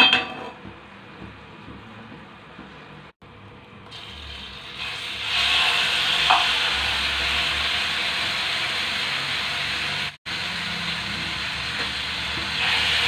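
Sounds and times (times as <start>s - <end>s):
chicken sizzling in butter: 4.0s - 13.0s.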